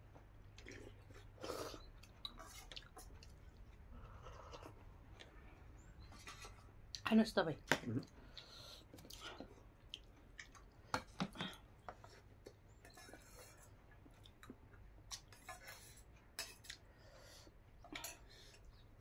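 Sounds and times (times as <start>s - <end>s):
person chewing: 0.2s - 5.4s, 8.0s - 16.9s.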